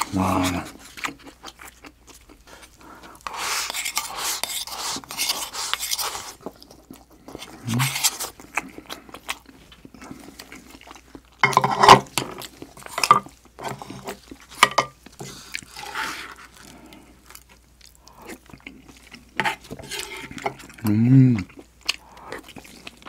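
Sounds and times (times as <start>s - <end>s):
person chewing: 0.0s - 23.0s
person slurping: 2.8s - 6.4s, 18.0s - 23.0s.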